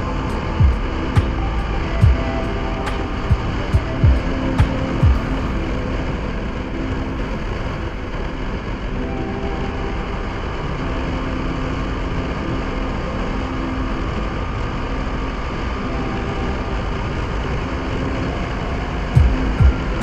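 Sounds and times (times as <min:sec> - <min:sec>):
steady rush of noise: 0:00.0 - 0:20.0
motorcycle engine running: 0:00.3 - 0:06.1, 0:19.2 - 0:20.0.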